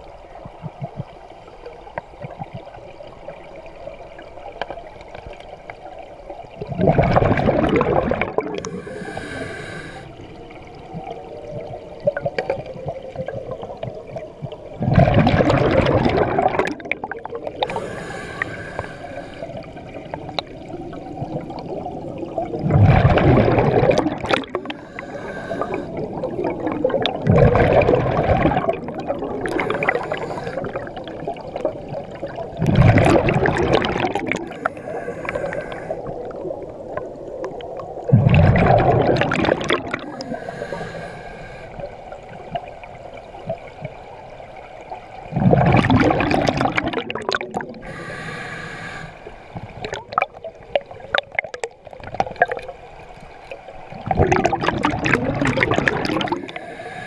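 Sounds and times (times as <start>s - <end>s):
exhaled bubbles bursting: 6.6s - 9.9s, 10.6s - 40.6s, 45.2s - 48.0s, 49.6s - 52.8s, 53.9s - 57.0s
inhalations through regulator: 8.6s - 10.2s, 17.6s - 19.7s, 24.6s - 26.1s, 29.5s - 30.9s, 34.4s - 36.2s, 40.0s - 41.9s, 47.8s - 49.4s, 56.2s - 57.0s.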